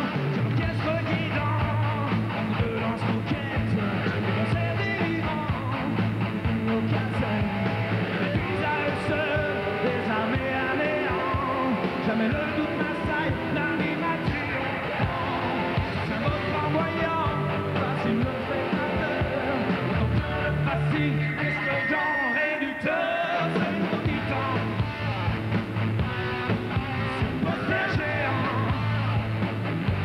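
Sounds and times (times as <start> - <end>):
man singing: 0.0 - 25.4, 26.8 - 29.3
bass guitar: 0.0 - 30.0
drums: 0.0 - 30.0
electric guitar: 0.0 - 30.0.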